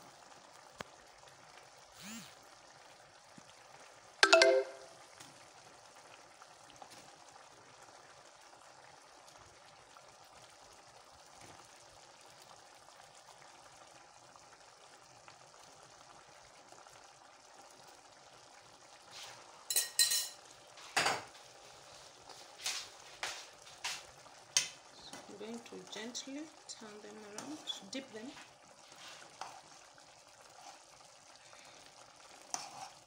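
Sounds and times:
sauce simmering in pot: 0.0s - 4.2s, 4.8s - 33.0s
metal spoon clinking pot: 19.7s - 20.4s.

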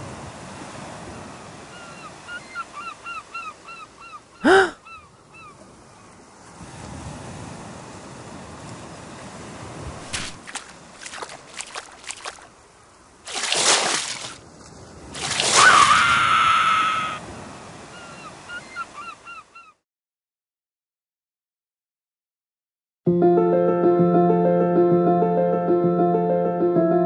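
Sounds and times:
waves washing on shore: 0.0s - 2.8s, 6.4s - 19.2s
short splashes: 10.0s - 12.6s, 13.2s - 16.4s.

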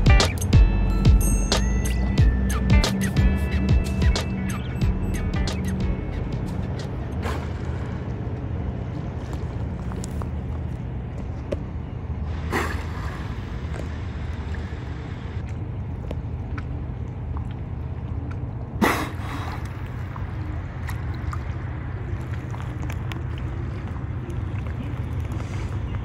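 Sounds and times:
low background rumble: 0.0s - 26.0s
dolphin blowhole exhale: 7.1s - 8.2s, 12.3s - 14.7s, 18.8s - 20.1s.

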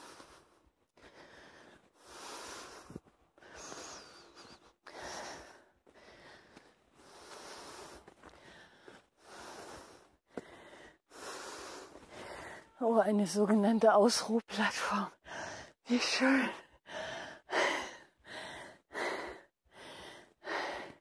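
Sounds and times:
man panting heavily: 16.8s - 21.0s.

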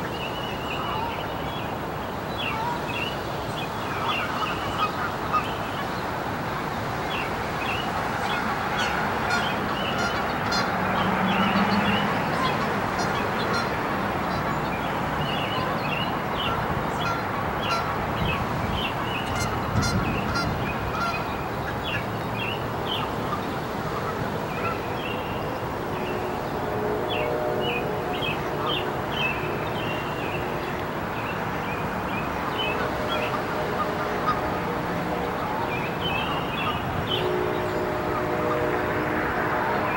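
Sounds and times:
birds chirping and calling: 35.2s - 38.1s.

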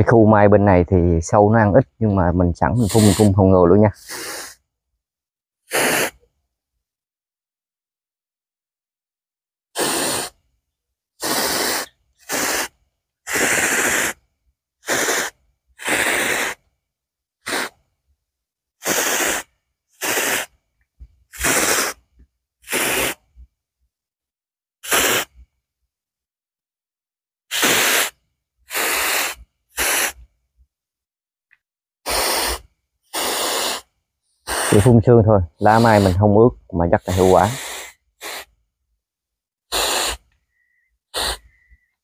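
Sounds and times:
hand sprayer hissing bursts: 2.8s - 4.6s, 5.7s - 6.2s, 9.7s - 10.5s, 11.2s - 16.7s, 17.4s - 17.9s, 18.8s - 20.7s, 21.3s - 23.4s, 24.8s - 25.5s, 27.5s - 30.3s, 32.0s - 38.6s, 39.6s - 41.9s.

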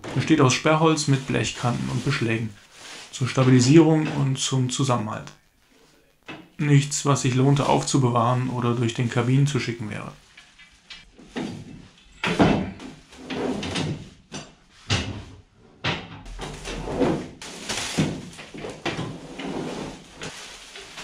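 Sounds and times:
plastic wrapping handled: 0.0s - 6.3s, 17.4s - 21.0s.

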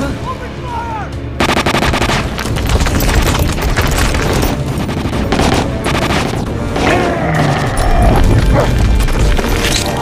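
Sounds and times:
rapid automatic gunfire: 1.4s - 6.5s.

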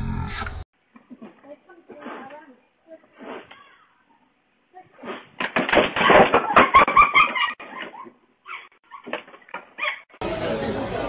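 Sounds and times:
wooden chair cracking and collapsing: 5.3s - 7.1s.

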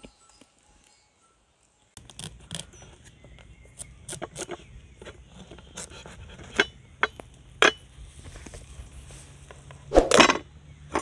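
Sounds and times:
knife scraping pumpkin rind: 2.0s - 6.8s.

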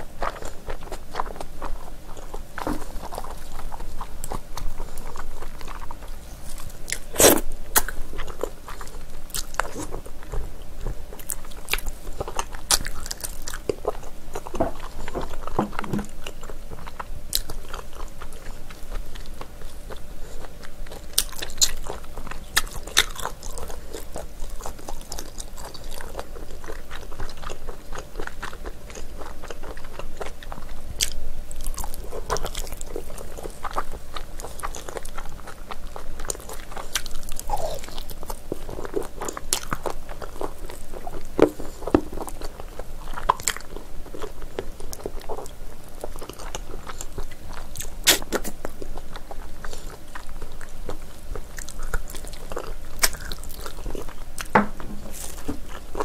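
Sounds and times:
close chewing and biting: 0.0s - 56.0s.

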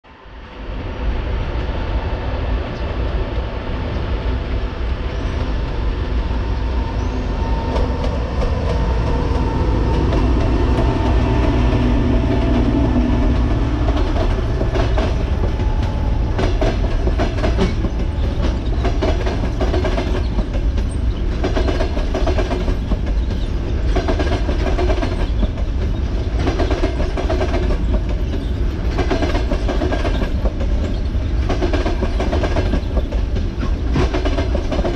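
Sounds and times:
electric locomotive humming: 0.1s - 34.9s
train wheels clacking on rail joints: 7.4s - 34.9s.

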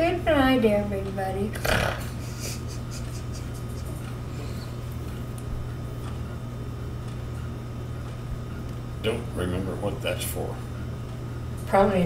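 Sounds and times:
faint rapid ticking: 0.0s - 1.6s
low machine hum with hiss: 0.0s - 12.0s.

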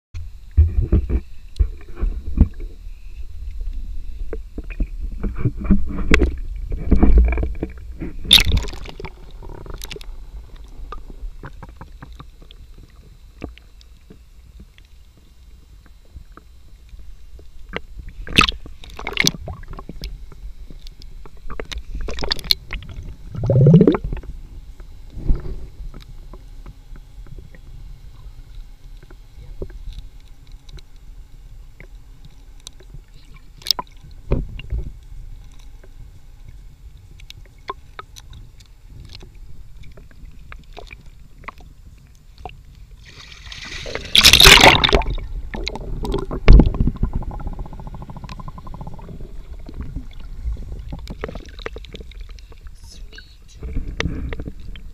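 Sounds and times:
low underwater rumble: 0.2s - 54.9s
underwater clicks: 5.9s - 12.6s, 17.7s - 20.1s, 43.8s - 52.7s
rushing burst of water: 43.0s - 45.2s.

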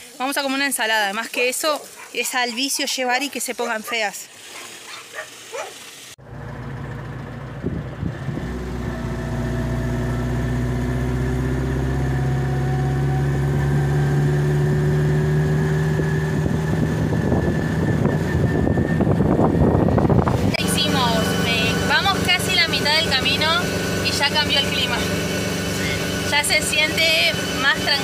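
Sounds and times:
van engine humming: 6.2s - 28.0s.

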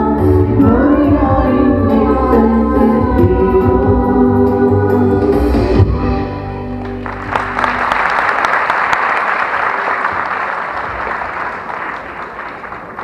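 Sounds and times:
audience applauding: 6.8s - 13.0s.

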